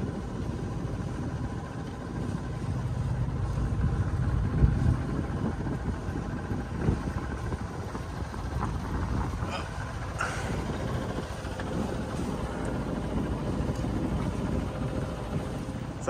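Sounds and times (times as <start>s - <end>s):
diesel engine rumble: 0.0s - 16.0s.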